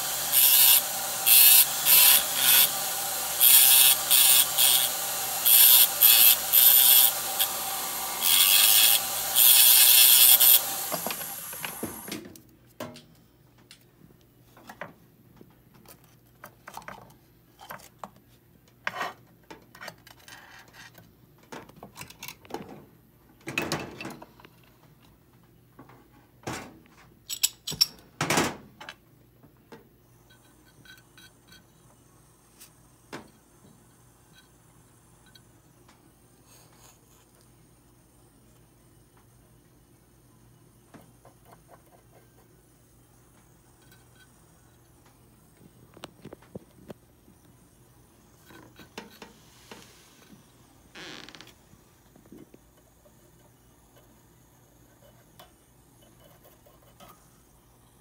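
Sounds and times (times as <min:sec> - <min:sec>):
rotary handpiece grinding metal: 0:00.0 - 0:11.8
tools clicking and knocking: 0:27.2 - 0:28.1.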